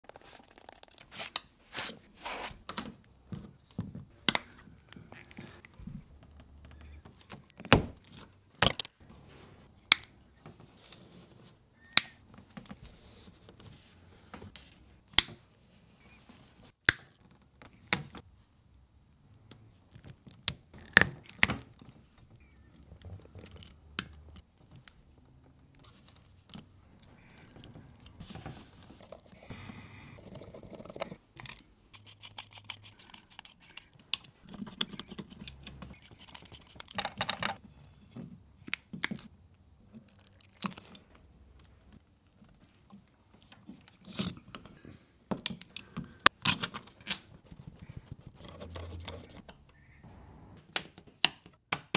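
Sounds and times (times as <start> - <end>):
cable rustling and scraping: 21.8 - 38.4, 46.8 - 49.8.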